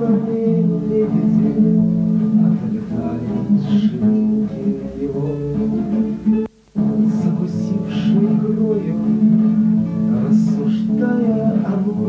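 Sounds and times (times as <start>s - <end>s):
acoustic guitar playing: 0.0s - 12.0s.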